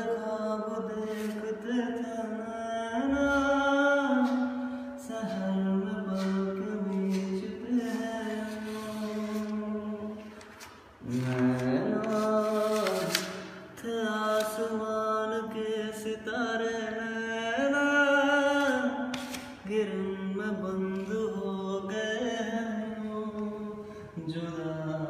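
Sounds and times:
man singing: 0.0s - 25.0s
breaths: 4.5s - 5.0s, 23.8s - 24.2s.

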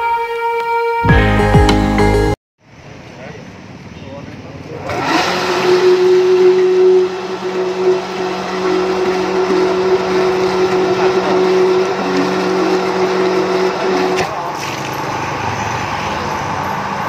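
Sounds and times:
water pump motor humming: 4.9s - 14.9s.

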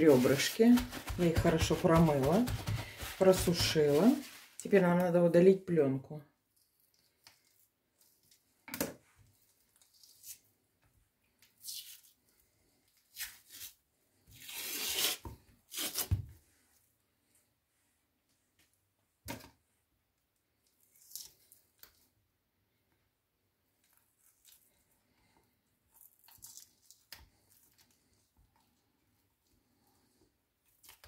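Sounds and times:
membrane ripping and scraping: 13.1s - 16.3s.

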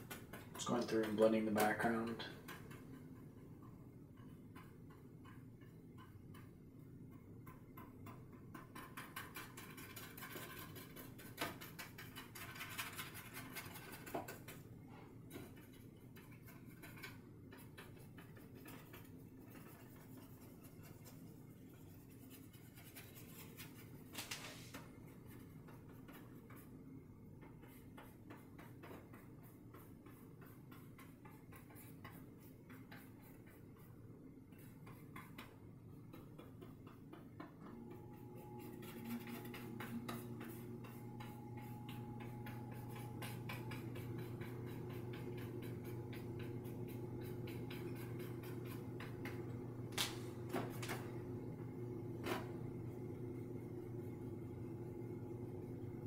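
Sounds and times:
low steady hum: 0.0s - 56.0s
paintbrush scratching on canvas: 8.7s - 26.7s, 27.4s - 35.5s, 37.9s - 49.6s.

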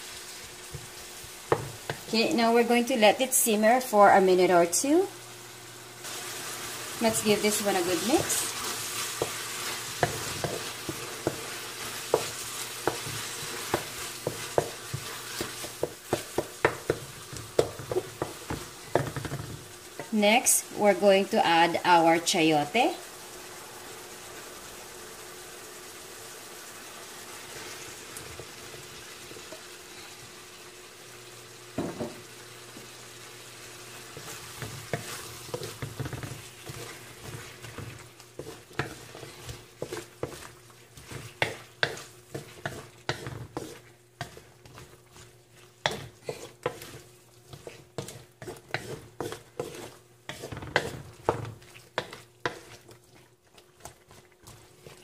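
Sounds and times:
vegetables sizzling in oil: 0.0s - 55.0s
spatula scraping wok: 6.0s - 20.4s, 33.9s - 55.0s
thump of food into pan: 31.8s - 32.2s.

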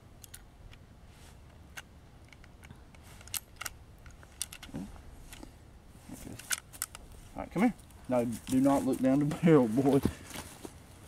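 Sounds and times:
rifle being loaded clicks: 3.2s - 4.7s.

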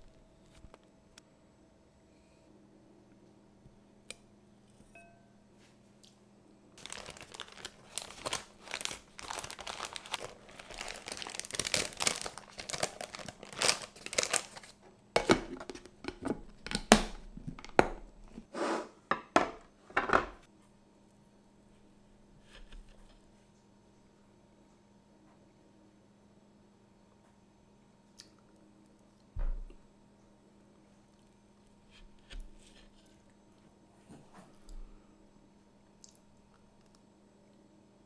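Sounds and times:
paper crinkling: 6.8s - 14.8s.

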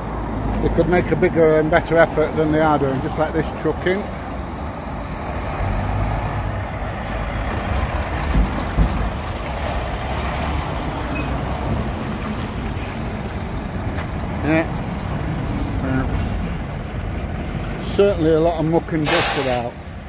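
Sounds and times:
truck diesel engine rumble: 0.0s - 20.0s
tyres rolling: 7.0s - 15.4s
thumps: 8.2s - 9.2s.

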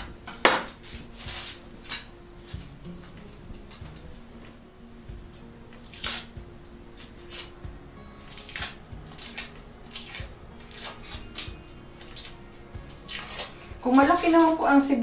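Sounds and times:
knife slicing onion: 5.8s - 6.4s, 7.0s - 14.6s.

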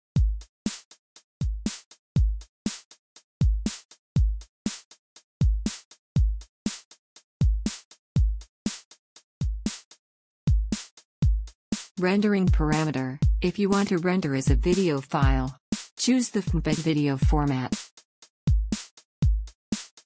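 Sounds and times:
drum machine beat: 0.2s - 0.8s, 1.4s - 2.8s, 3.4s - 4.8s, 5.4s - 8.8s, 9.4s - 9.9s, 10.5s - 20.0s.

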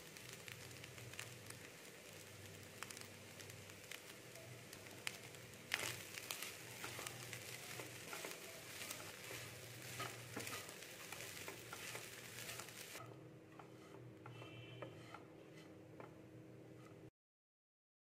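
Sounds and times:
light sizzle: 0.0s - 17.1s
spatula scraping rice in a pan: 0.2s - 1.7s, 2.5s - 17.1s
spatula knocking against pan: 13.0s - 16.2s.

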